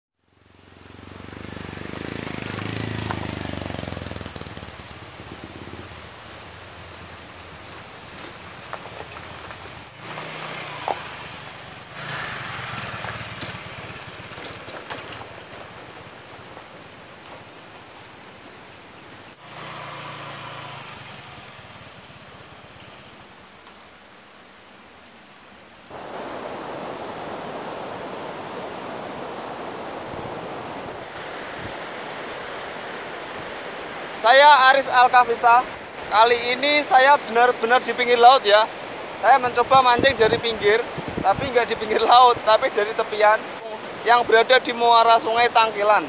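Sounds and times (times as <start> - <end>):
motor scooter passing by: 0.3 - 18.2, 19.2 - 23.5.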